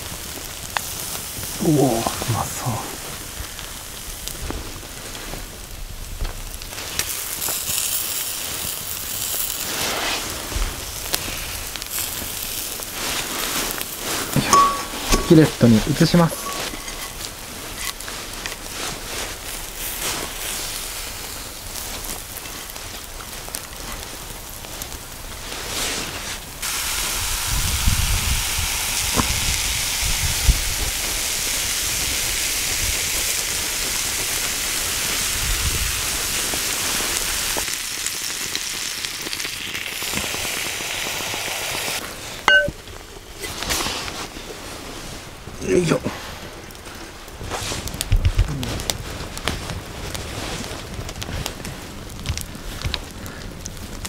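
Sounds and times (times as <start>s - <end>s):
chicken sizzling in a skillet: 0.0s - 44.0s
sharp clinks: 14.4s - 15.5s, 42.5s - 42.8s.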